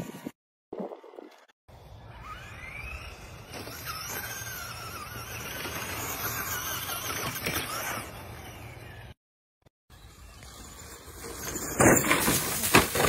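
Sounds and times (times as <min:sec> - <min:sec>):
rc truck motor whining: 0:01.7 - 0:09.2, 0:09.9 - 0:12.2.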